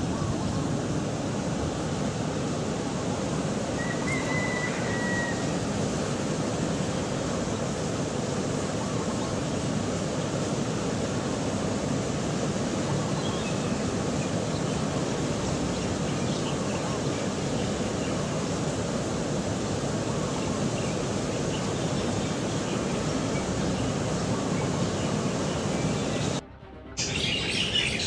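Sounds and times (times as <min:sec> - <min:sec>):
heavy ocean surf breaking: 0:00.0 - 0:26.4.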